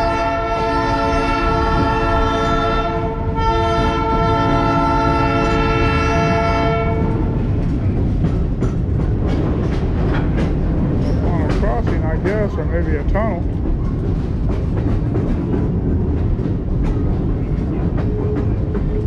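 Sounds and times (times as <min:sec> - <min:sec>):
train horn blasts: 0:00.0 - 0:07.4
rail car rumbling on track: 0:00.0 - 0:19.0.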